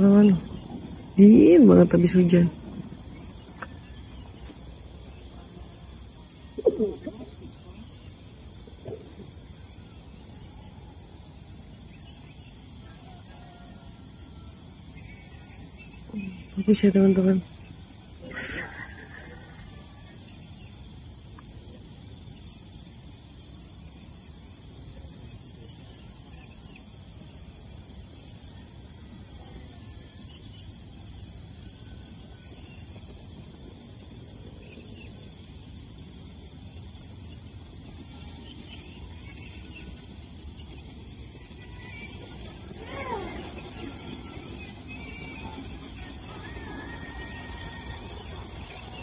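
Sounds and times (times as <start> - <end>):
insects chirping: 0.0 - 49.0.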